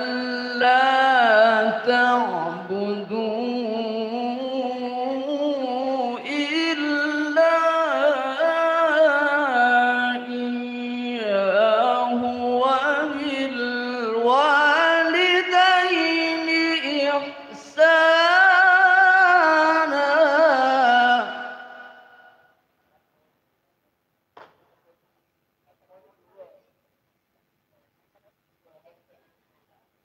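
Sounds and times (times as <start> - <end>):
man reciting melodically into microphone: 0.0 - 22.4.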